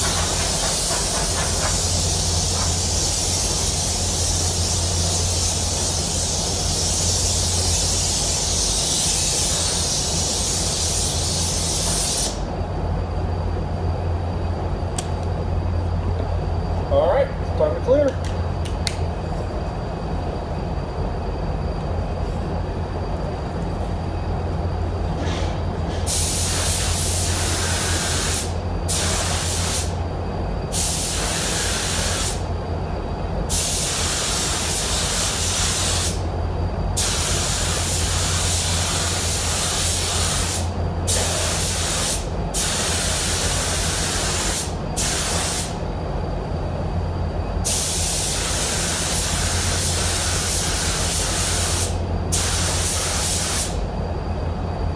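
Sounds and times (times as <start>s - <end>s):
paint spray gun hissing in bursts: 0.0s - 12.5s, 26.1s - 30.0s, 30.7s - 32.5s, 33.5s - 36.2s, 37.0s - 45.8s, 47.6s - 53.8s
steady low hum: 0.0s - 54.9s.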